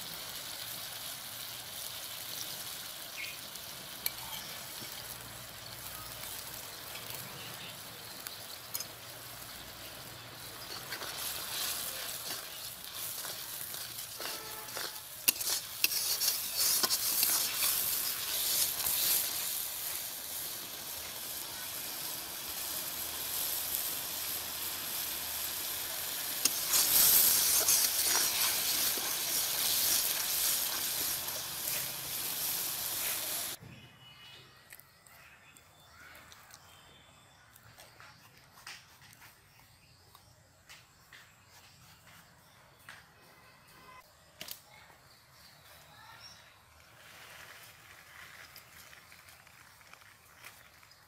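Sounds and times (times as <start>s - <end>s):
food sizzling in hot oil: 0.0s - 33.6s
spatula scraping a pan: 10.1s - 20.5s, 25.7s - 33.6s.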